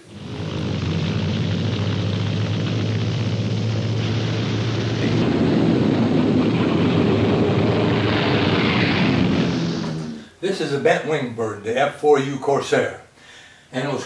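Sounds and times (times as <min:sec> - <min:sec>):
propeller airplane engine drone: 0:00.0 - 0:10.2.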